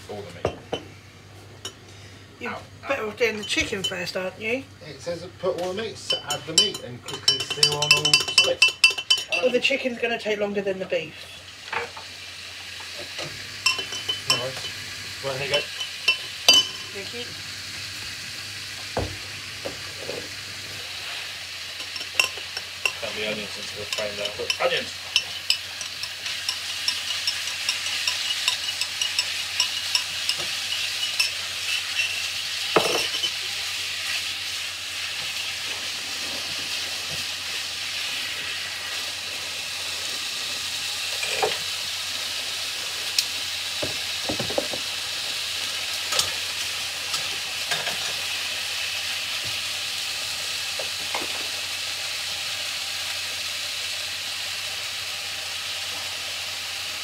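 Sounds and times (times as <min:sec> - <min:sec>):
chicken sizzling in frying pan: 0:00.0 - 0:57.0
spatula scraping a pan: 0:21.0 - 0:33.4.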